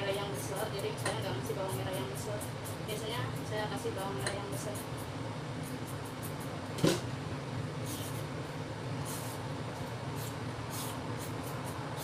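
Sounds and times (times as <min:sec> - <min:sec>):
steady low hum: 0:00.0 - 0:12.0
knock: 0:06.8 - 0:07.0.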